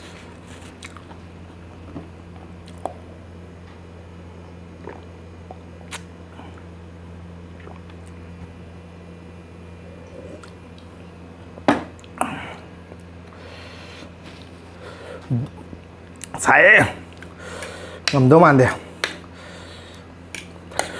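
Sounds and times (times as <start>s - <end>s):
steady low hum: 0.0s - 20.9s
person gulping a drink: 4.6s - 6.7s, 7.5s - 8.3s
wet swallowing sounds: 4.6s - 6.8s, 7.5s - 8.5s, 10.0s - 11.0s.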